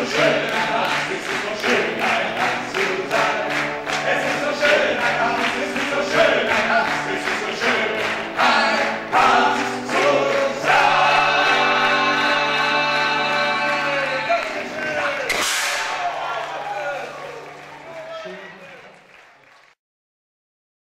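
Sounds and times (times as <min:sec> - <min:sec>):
men singing together: 0:00.0 - 0:14.8.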